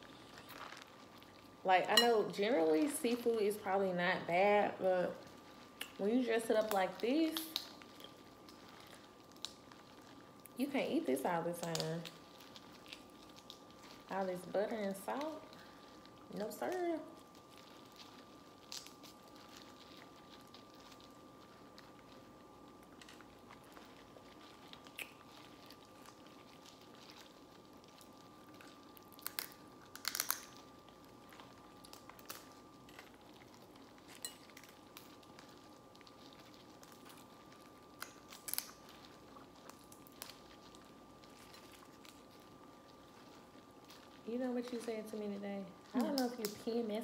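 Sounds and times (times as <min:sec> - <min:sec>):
chewing: 0:00.0 - 0:01.6, 0:05.2 - 0:06.0, 0:06.6 - 0:10.6, 0:11.6 - 0:14.2, 0:17.2 - 0:44.9
faint steady hum: 0:00.0 - 0:47.0
seafood shells cracking: 0:05.2 - 0:10.6, 0:11.4 - 0:44.9.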